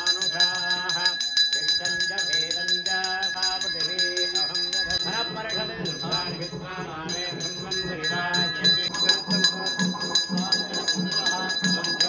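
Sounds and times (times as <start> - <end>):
temple bell ringing: 0.0 - 12.0
low beat: 3.5 - 12.0.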